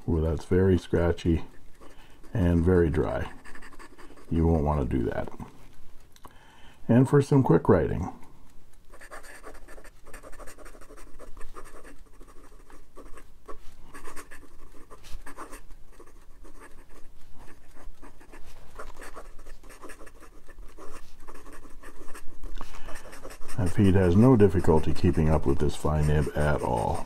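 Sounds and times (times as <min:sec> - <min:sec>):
pen nib scratching on paper: 0:01.5 - 0:04.6, 0:08.8 - 0:27.0.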